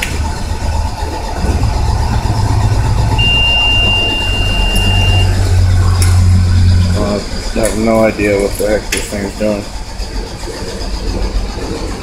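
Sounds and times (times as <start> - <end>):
starter cranking engine: 0.0 - 12.0
high-pitched beep: 3.2 - 5.5.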